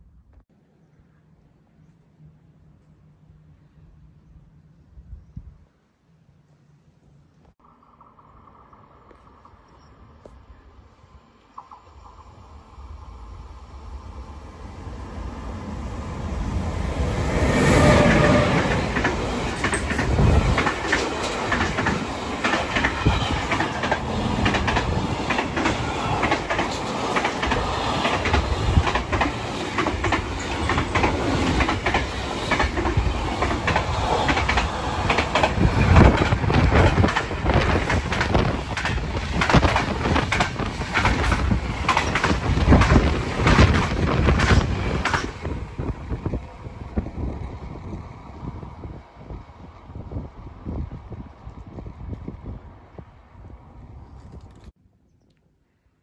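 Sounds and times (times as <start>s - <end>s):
train wheels clacking over rail joints: 18.0s - 45.5s.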